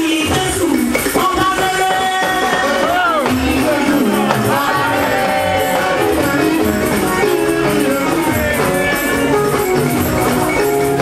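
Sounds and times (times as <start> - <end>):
drums dance beat: 0.0 - 11.0
keyboard notes: 1.2 - 11.0.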